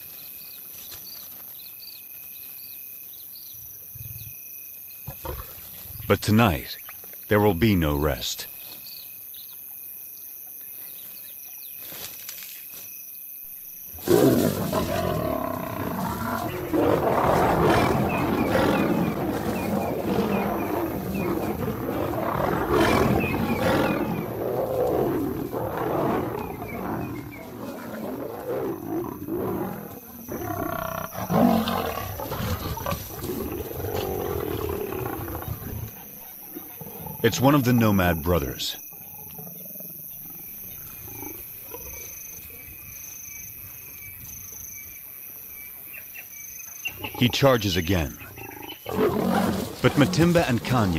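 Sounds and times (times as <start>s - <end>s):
lions snarling and roaring: 5.1s - 6.7s, 13.9s - 42.8s, 46.8s - 50.9s.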